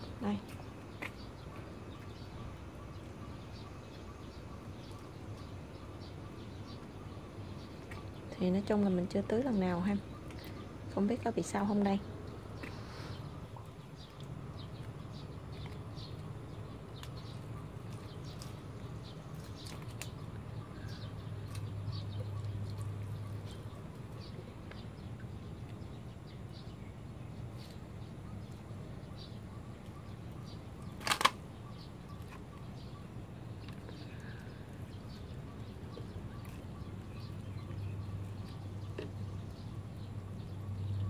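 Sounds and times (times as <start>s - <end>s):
steady low hum: 0.0s - 41.0s
water trickling onto soil: 4.8s - 26.0s.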